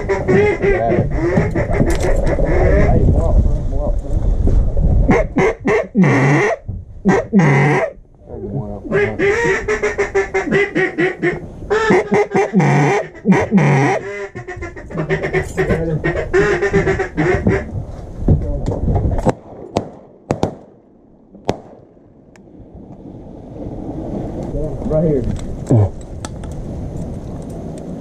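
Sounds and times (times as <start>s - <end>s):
duck calls quacking: 0.0s - 3.0s, 5.1s - 7.9s, 8.9s - 17.7s
shotgun shots: 19.2s - 20.8s, 21.4s - 21.9s.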